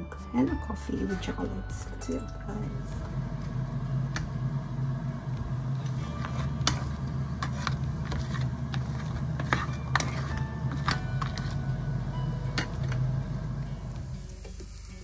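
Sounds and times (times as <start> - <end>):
steady low hum: 1.0 - 14.4
spatula scraping frying pan: 5.8 - 11.7.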